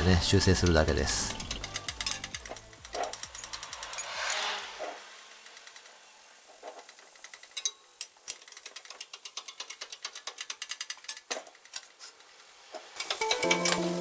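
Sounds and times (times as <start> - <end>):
music: 0.0 - 3.8, 13.0 - 14.0.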